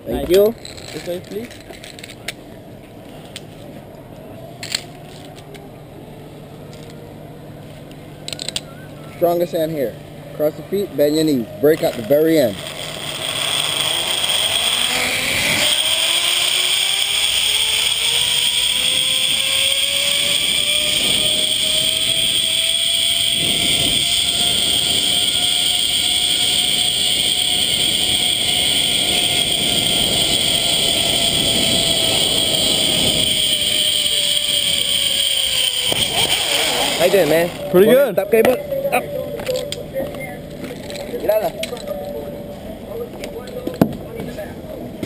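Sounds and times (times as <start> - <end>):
zipline pulley whine on cable: 8.3 - 45.0
wind rushing over microphone: 20.5 - 34.9.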